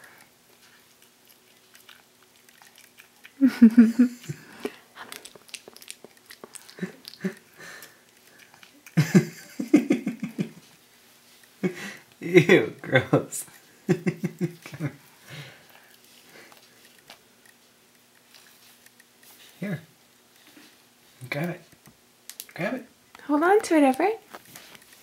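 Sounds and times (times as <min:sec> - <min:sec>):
baby chewing with wet mouthing: 0:00.0 - 0:09.0, 0:15.7 - 0:19.6.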